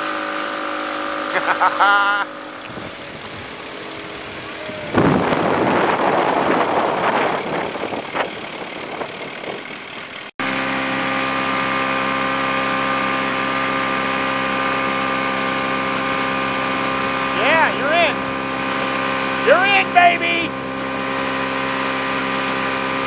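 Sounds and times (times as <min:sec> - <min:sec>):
motorboat engine running: 0:00.0 - 0:23.0
rushing wind and water: 0:02.6 - 0:09.4.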